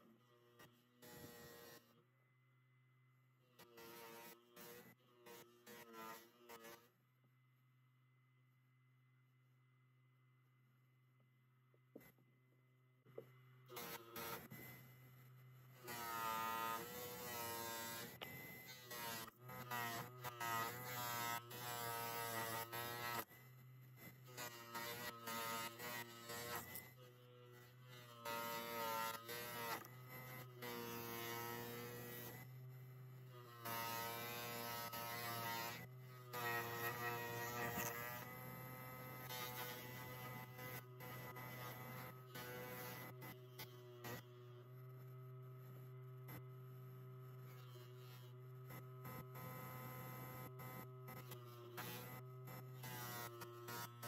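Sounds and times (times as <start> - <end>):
electric motor humming: 15.7 - 23.3, 24.2 - 54.0
metal against wire wheel buzzing: 24.3 - 32.5, 33.4 - 44.3.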